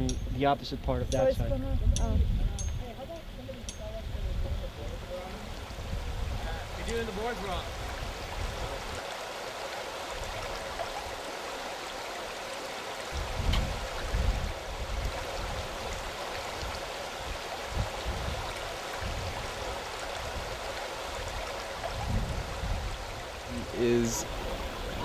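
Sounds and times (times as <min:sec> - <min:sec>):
river water rushing over rocks: 0:05.0 - 0:25.0.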